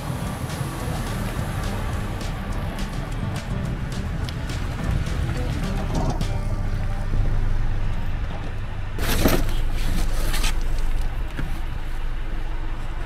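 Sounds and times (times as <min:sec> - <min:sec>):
low rumble: 0:00.0 - 0:09.0
cardboard scraping and rustling: 0:09.0 - 0:11.7.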